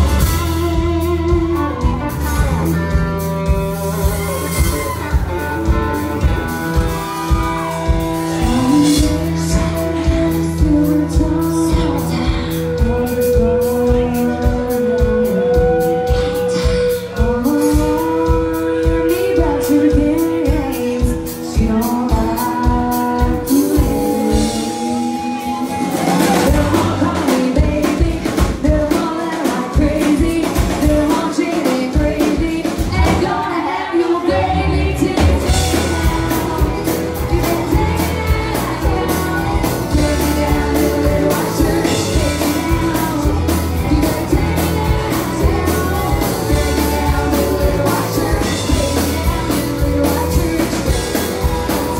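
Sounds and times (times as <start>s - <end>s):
bass guitar: 0.0s - 51.9s
drums: 0.0s - 51.9s
electric guitars: 0.0s - 51.9s
woman singing lead vocal: 0.0s - 51.9s.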